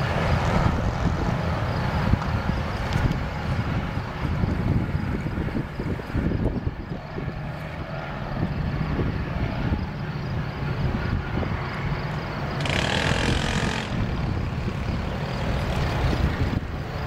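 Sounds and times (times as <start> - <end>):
diesel trains rumbling: 0.0 - 17.0.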